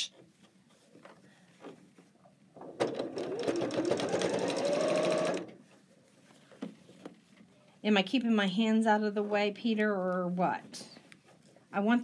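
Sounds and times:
sewing machine stitching: 0:02.8 - 0:05.6.

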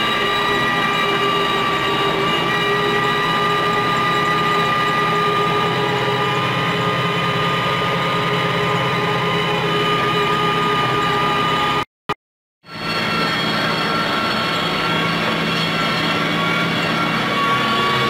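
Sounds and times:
tractor diesel engine running: 0:00.0 - 0:11.8
high-pitched whine: 0:00.0 - 0:11.9, 0:12.7 - 0:18.0.

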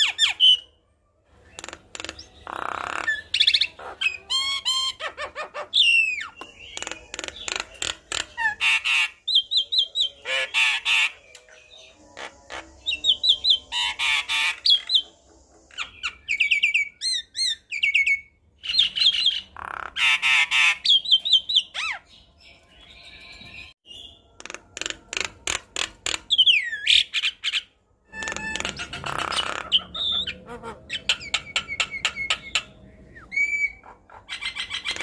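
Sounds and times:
bird singing varied song: 0:00.0 - 0:35.0.

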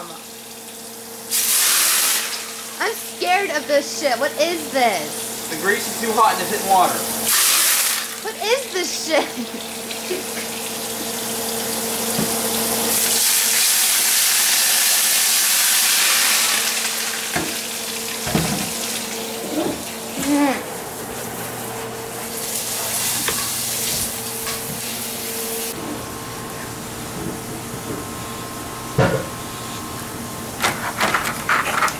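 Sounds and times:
steady hum: 0:02.2 - 0:13.1, 0:17.0 - 0:31.3
tap water running into sink: 0:09.6 - 0:19.2.

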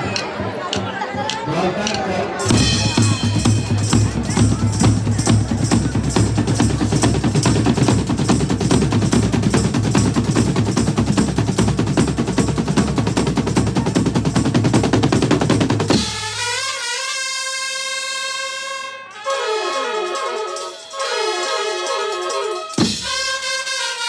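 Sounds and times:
drum rolls: 0:00.0 - 0:16.3
trumpets and saxophones sliding note: 0:15.9 - 0:24.0.

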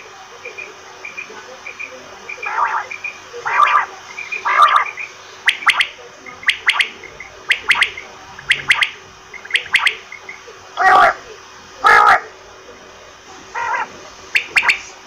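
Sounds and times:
quail calling: 0:01.0 - 0:11.2, 0:11.8 - 0:12.3, 0:13.5 - 0:14.9.

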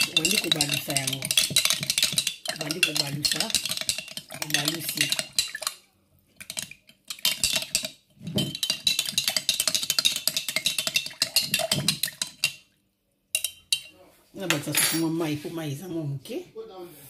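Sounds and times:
metal spoon clinking in glass jar: 0:00.0 - 0:05.8, 0:06.4 - 0:12.6, 0:13.4 - 0:13.9.

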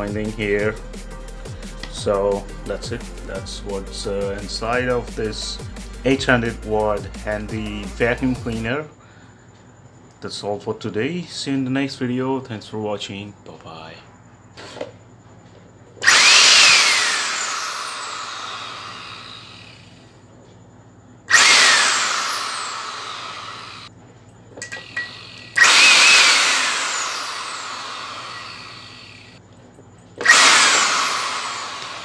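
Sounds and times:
vacuum cleaner motor running: 0:16.0 - 0:20.0, 0:21.3 - 0:23.9, 0:24.8 - 0:29.4, 0:30.2 - 0:32.0.

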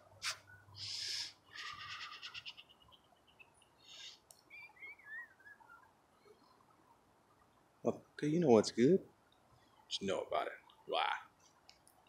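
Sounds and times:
bird trill: 0:00.4 - 0:06.8
thin bird chirps: 0:00.4 - 0:07.6.

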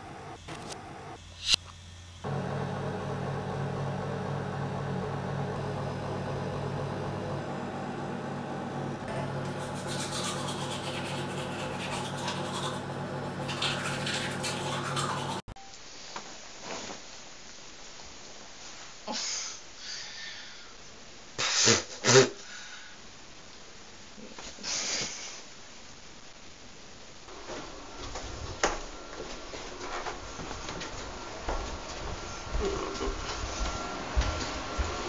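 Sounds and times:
low mechanical hum: 0:00.0 - 0:15.5
rustling and scraping: 0:16.6 - 0:17.1.

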